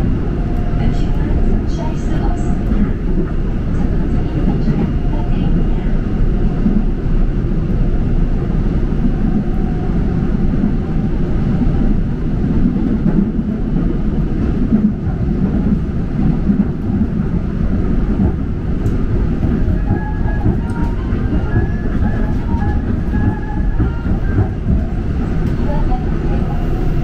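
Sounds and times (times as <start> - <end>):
subway train rumbling: 0.0 - 27.0.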